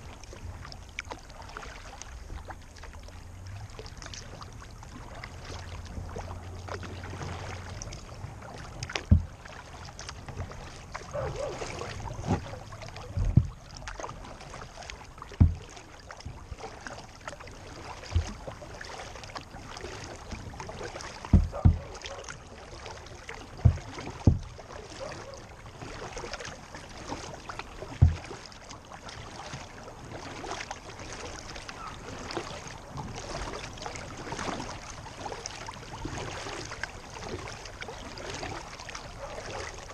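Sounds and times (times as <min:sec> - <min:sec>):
water lapping along hull: 0:00.0 - 0:39.9
dull knocks on hull: 0:08.9 - 0:09.6, 0:10.2 - 0:13.8, 0:15.3 - 0:16.6, 0:18.0 - 0:18.6, 0:21.2 - 0:22.3, 0:23.5 - 0:25.2, 0:27.9 - 0:28.4.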